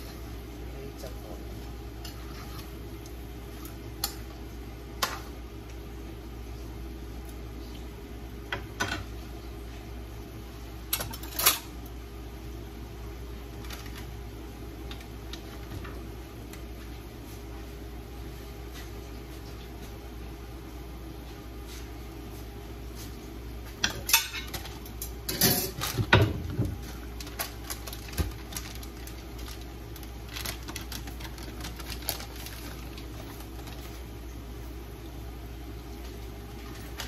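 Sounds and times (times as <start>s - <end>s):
steady hum: 0.0s - 37.0s.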